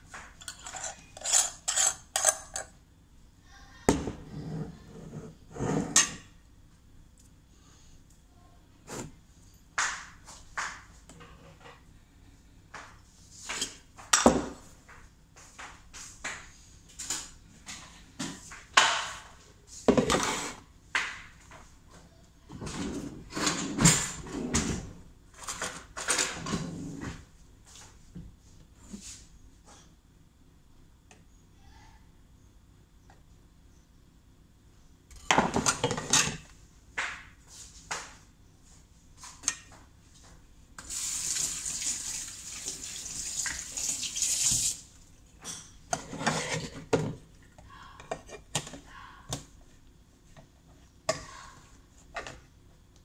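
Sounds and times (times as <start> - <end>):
objects clattering on kitchen counter: 0.0 - 2.8, 3.9 - 6.3, 9.8 - 11.9, 12.8 - 15.1, 16.4 - 21.7, 22.5 - 27.3, 35.1 - 38.2, 45.4 - 47.3.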